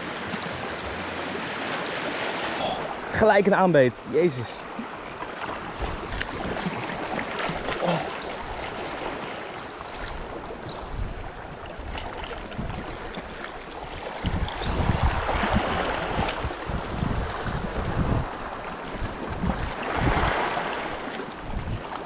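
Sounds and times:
surf washing against rocks: 0.0s - 22.0s
wind buffeting microphone: 9.9s - 20.8s, 21.4s - 22.0s.

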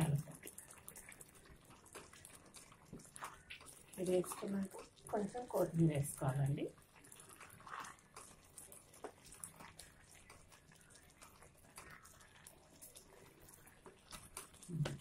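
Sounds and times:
curry simmering in a pot: 0.0s - 15.0s
ladle stirring: 6.8s - 15.0s.

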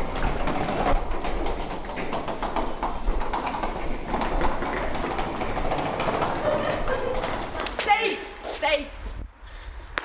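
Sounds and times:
wheeled suitcase rolling: 0.0s - 7.8s
footsteps on tiled floor: 0.0s - 10.0s.

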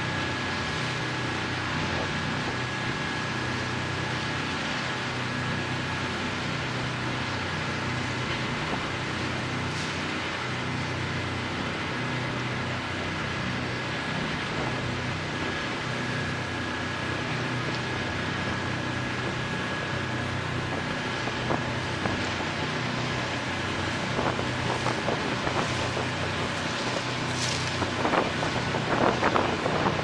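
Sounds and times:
diesel engine drone: 0.0s - 30.0s
wind on microphone: 19.1s - 30.0s
rushing water: 19.4s - 30.0s.

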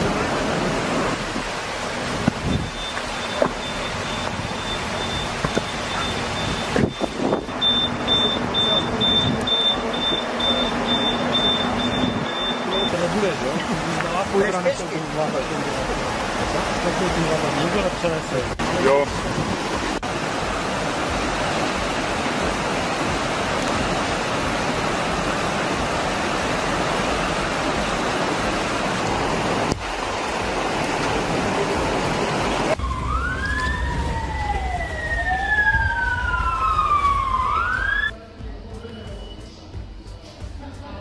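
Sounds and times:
rushing stream: 0.0s - 38.1s
emergency siren wailing: 2.8s - 13.0s, 32.6s - 38.1s.

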